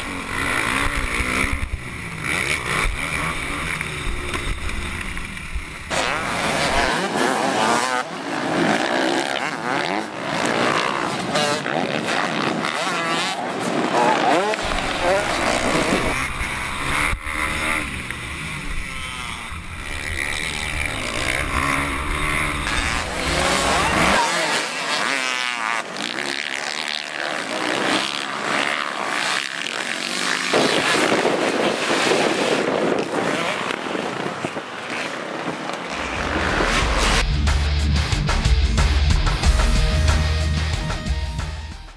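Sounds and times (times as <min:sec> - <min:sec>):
dirt bike engines revving: 0:00.0 - 0:41.9
wind rumbling on microphone: 0:30.5 - 0:37.3.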